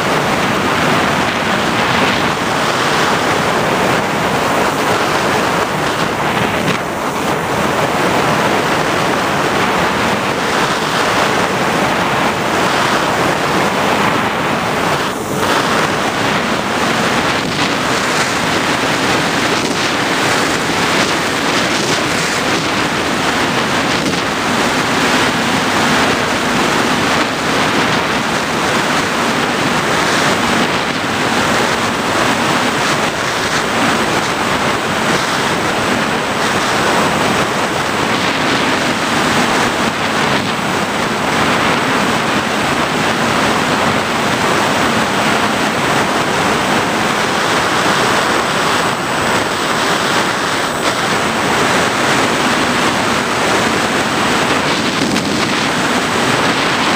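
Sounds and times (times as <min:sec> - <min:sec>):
wind roaring over microphone: 0:00.0 - 0:56.9.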